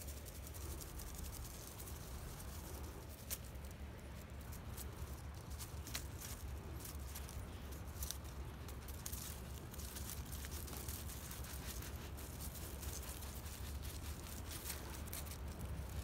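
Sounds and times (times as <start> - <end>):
dry leaf crinkling on pavement: 0.0 - 16.0
low steady rumble: 0.0 - 16.0.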